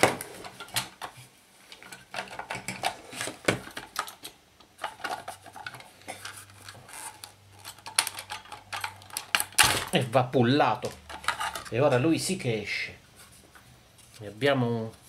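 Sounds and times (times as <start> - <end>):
metallic clicks and rattles: 3.7 - 10.0.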